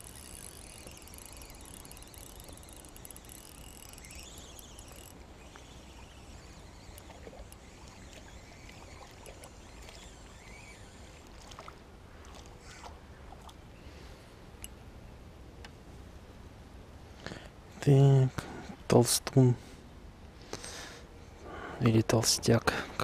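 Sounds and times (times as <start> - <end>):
fishing reel whirring and ticking: 0.0 - 12.8
outdoor background noise: 0.0 - 23.0.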